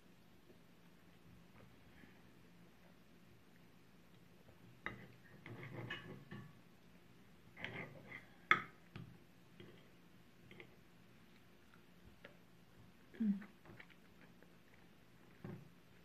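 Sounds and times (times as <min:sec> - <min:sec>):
knife and fork scraping plate: 0:04.9 - 0:06.3, 0:07.6 - 0:08.3.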